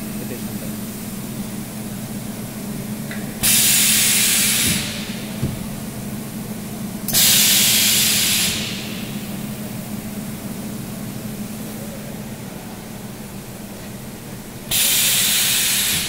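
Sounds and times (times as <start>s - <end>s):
steady low hum: 0.0s - 16.0s
pneumatic ram hissing: 3.4s - 5.9s, 7.1s - 8.9s, 14.7s - 16.0s.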